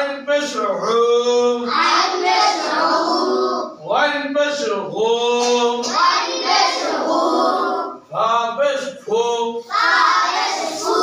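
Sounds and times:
boys chanting in unison: 0:00.8 - 0:03.8, 0:04.6 - 0:08.0, 0:09.3 - 0:11.0.

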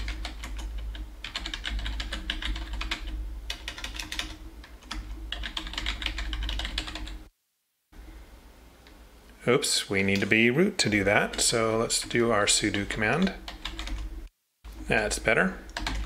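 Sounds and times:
typing on a keyboard: 0:00.0 - 0:07.2, 0:13.5 - 0:14.1, 0:15.7 - 0:16.0
low steady hum: 0:00.0 - 0:16.0.

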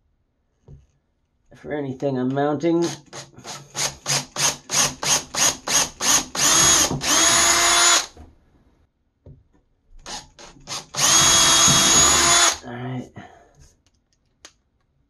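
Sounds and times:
cordless drill whining: 0:02.8 - 0:08.2, 0:10.0 - 0:12.6.

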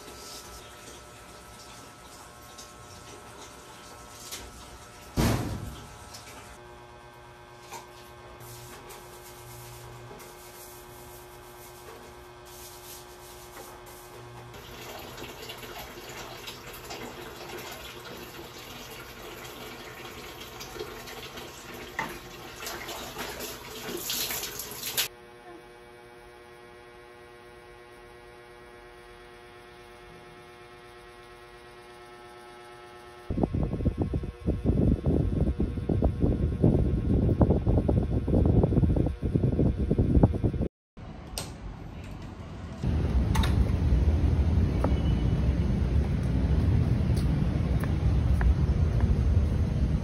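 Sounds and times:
water running and splashing: 0:14.6 - 0:25.1
low steady hum: 0:27.9 - 0:50.0.

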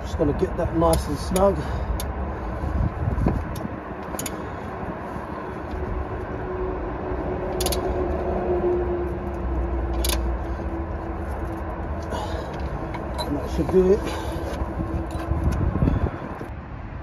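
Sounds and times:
low background rumble: 0:00.0 - 0:16.5
sharp metallic clicks: 0:00.8 - 0:02.2, 0:03.5 - 0:04.4, 0:07.4 - 0:08.1, 0:09.3 - 0:10.8.

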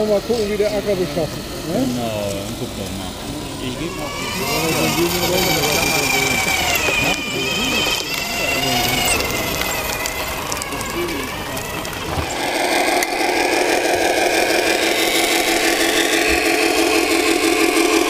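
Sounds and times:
electronic diesel engine sound: 0:00.0 - 0:18.0.

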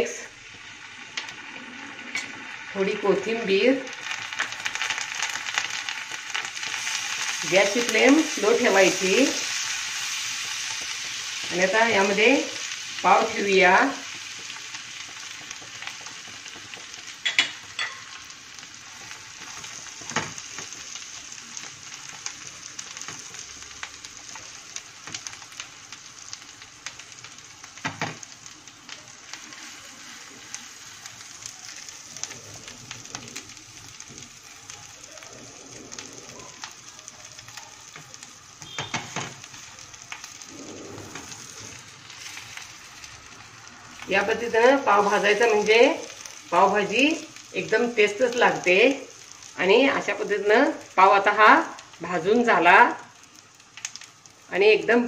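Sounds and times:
butter sizzling on griddle: 0:00.0 - 0:55.0.

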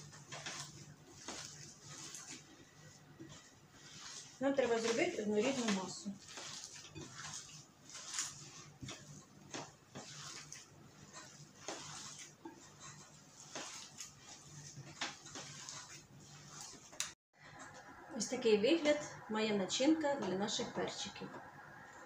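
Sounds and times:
hand squelching minced meat: 0:00.0 - 0:17.1.

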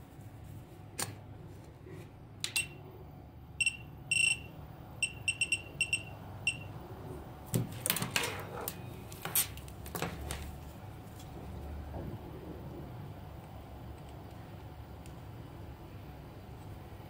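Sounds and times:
short high beeps: 0:03.6 - 0:06.7.

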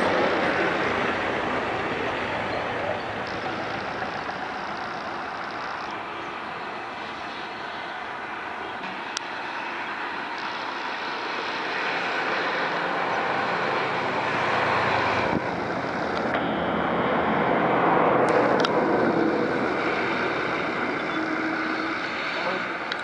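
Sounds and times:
distant vehicle engines: 0:00.0 - 0:23.0.

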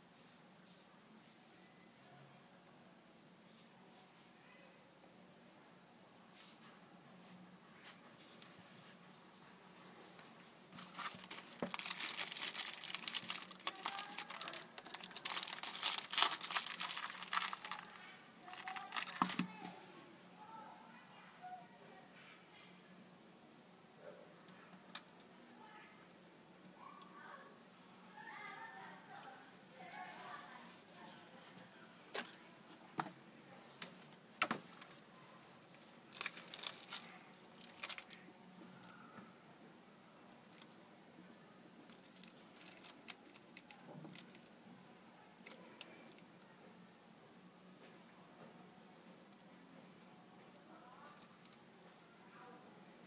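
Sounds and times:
plastic bag crinkling: 0:10.8 - 0:19.8, 0:36.0 - 0:38.2, 0:41.9 - 0:44.5.

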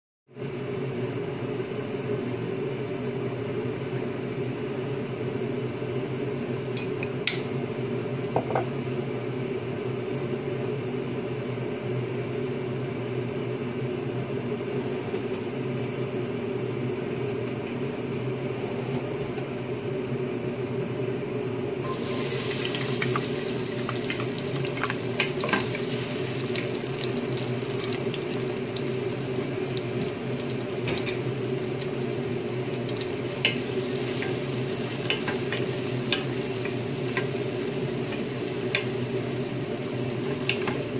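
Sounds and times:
steady low hum: 0:15.9 - 0:40.9
onions sizzling in hot oil: 0:21.8 - 0:40.9.

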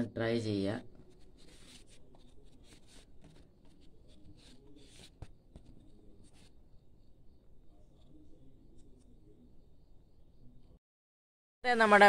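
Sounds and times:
paper card rustling: 0:00.9 - 0:06.6.

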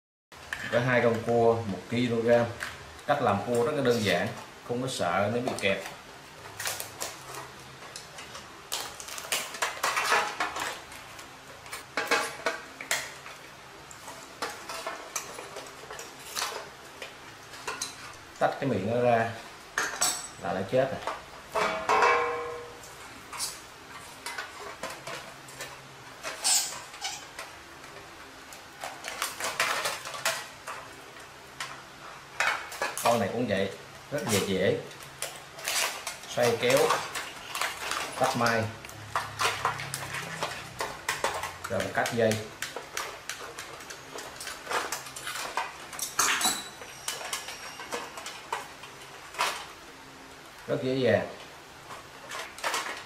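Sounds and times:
crab shell crackling: 0:05.6 - 0:18.4, 0:34.1 - 0:46.2.

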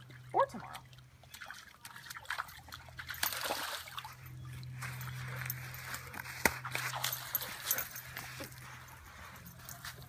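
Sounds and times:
dog splashing through water: 0:00.0 - 0:07.9.

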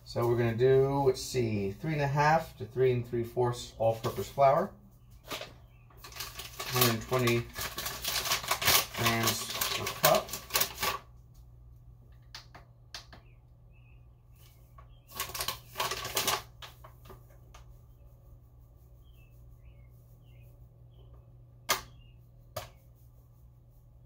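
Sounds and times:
flour bag crinkling: 0:05.2 - 0:11.2, 0:14.9 - 0:17.2
sharp clicks and taps: 0:12.1 - 0:13.3.

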